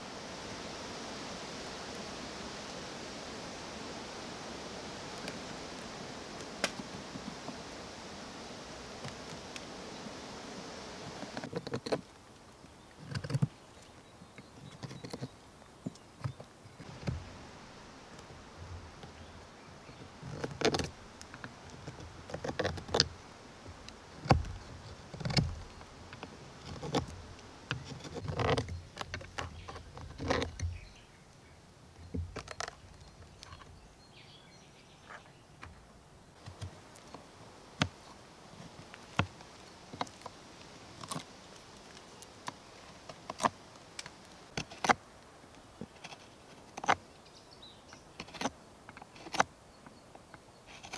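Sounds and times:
knife carving wood: 0:11.2 - 0:12.1, 0:20.2 - 0:30.8, 0:50.7 - 0:50.9.

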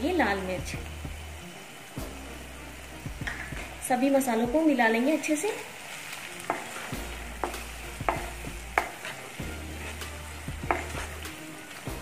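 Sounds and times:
food sizzling in oil: 0:00.0 - 0:12.0
spatula knocking against pan: 0:06.5 - 0:06.8, 0:07.4 - 0:09.1, 0:10.6 - 0:11.1.

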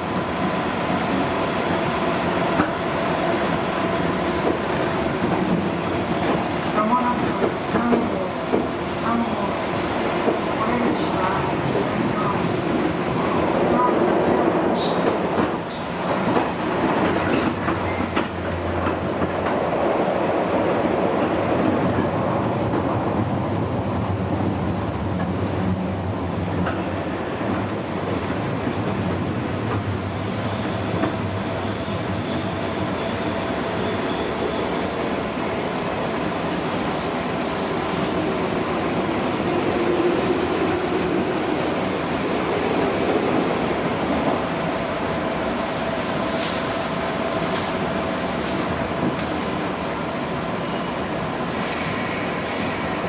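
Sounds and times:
train wheels rumbling on rail: 0:00.0 - 0:53.0.

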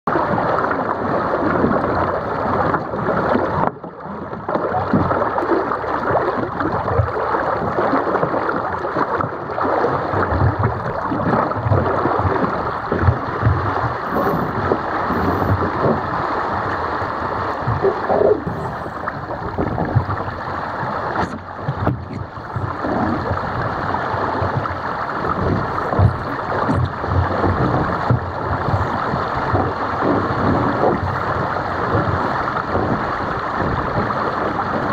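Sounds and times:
water rushing along a hull: 0:00.1 - 0:34.9
wind buffeting microphone: 0:09.4 - 0:34.9.

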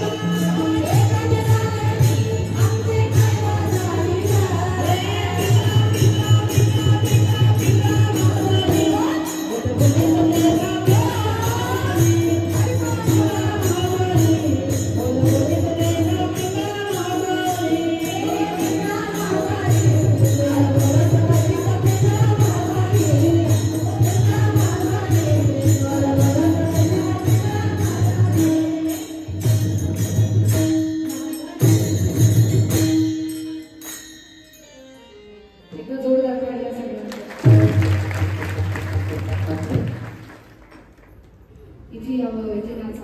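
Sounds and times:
voices singing devotional melody: 0:00.0 - 0:34.1
hand cymbals beating: 0:00.0 - 0:35.4.

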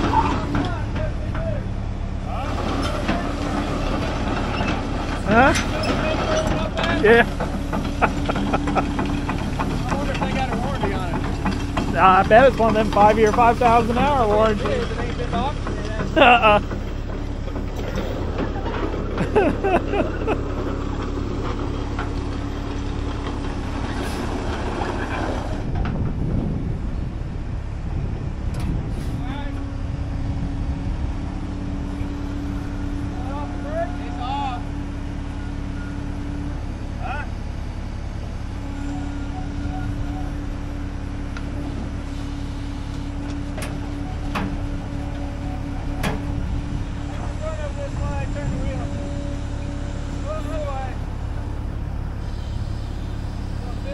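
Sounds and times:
diesel engine humming: 0:00.0 - 0:53.9.

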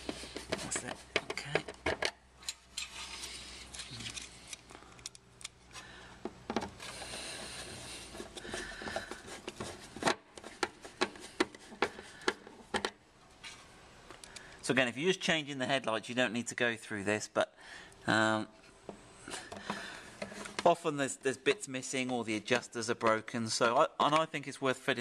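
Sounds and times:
metal scraping on metal: 0:02.4 - 0:04.6.

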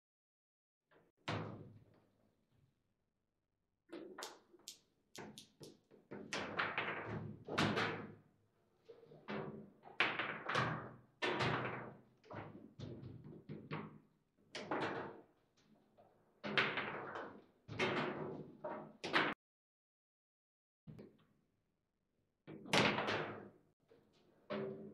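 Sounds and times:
foosball knocks and clacks: 0:04.0 - 0:08.2, 0:09.4 - 0:14.0, 0:16.5 - 0:19.4.

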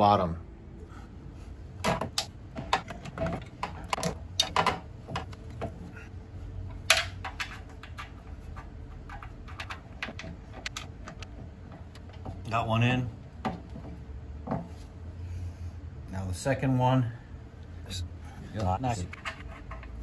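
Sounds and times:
metal plate frame clicking and tapping: 0:01.8 - 0:05.8, 0:06.7 - 0:12.4.

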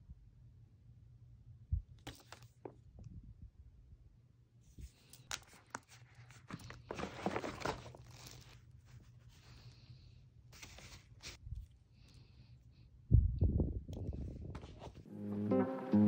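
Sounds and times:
plastic pouch rustling and crinkling: 0:04.8 - 0:09.9, 0:10.5 - 0:12.3.

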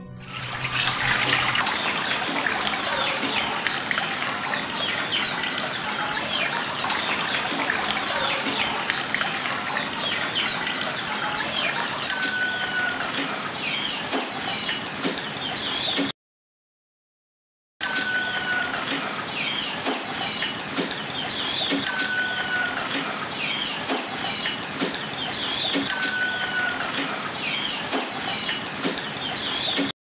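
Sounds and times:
trickling water: 0:00.2 - 0:13.6
birds chirping: 0:00.8 - 0:14.8.

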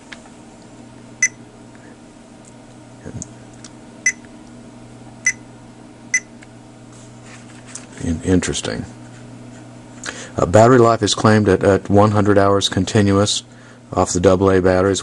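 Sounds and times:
steady low hum: 0:00.0 - 0:15.0
multimeter keypad beeps: 0:01.2 - 0:01.4, 0:04.0 - 0:04.2, 0:05.2 - 0:05.4, 0:06.1 - 0:06.3.

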